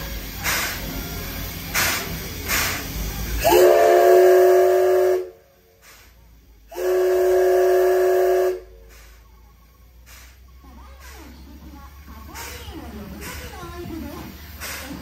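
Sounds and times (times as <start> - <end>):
steam hissing: 0.0 - 15.0
steam whistle blasts: 3.4 - 5.4, 6.7 - 8.8.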